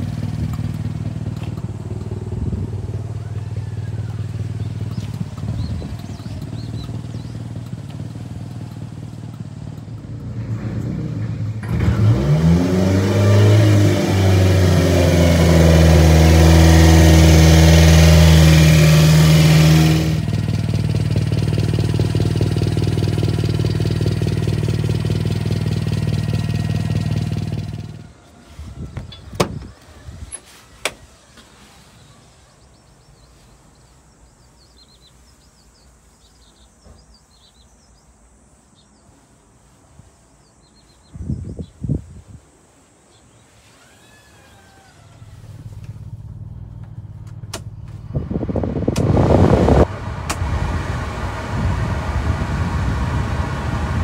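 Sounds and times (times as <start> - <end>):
truck engine running: 0.0 - 11.9, 12.9 - 28.1, 45.2 - 54.0.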